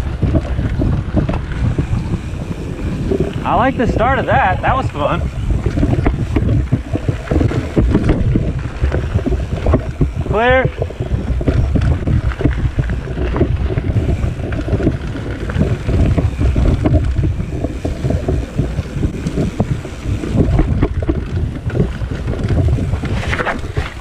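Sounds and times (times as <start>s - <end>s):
bike rattles and knocks: 0.0s - 24.0s
bike tyres rolling on gravel: 0.0s - 24.0s
wind buffeting microphone: 0.0s - 24.0s.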